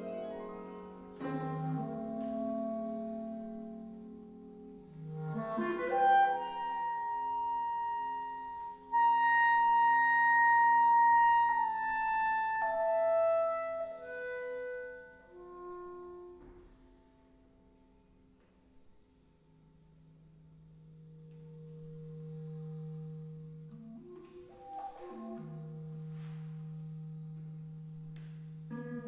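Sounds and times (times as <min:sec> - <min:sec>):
clarinet solo: 0:00.0 - 0:18.1, 0:20.0 - 0:29.0
faint sustained low tones: 0:15.5 - 0:29.0.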